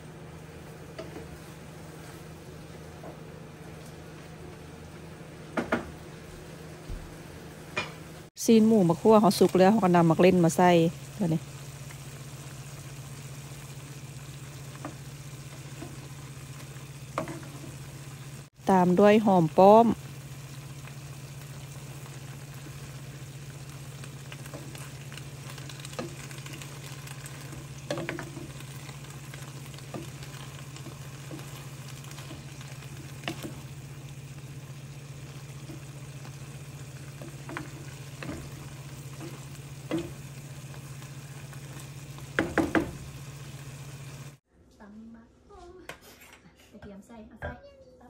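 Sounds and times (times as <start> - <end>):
food sizzling in a frying pan: 0.0 - 44.4
wooden spatula knocking on pan: 5.6 - 5.9, 42.3 - 43.0.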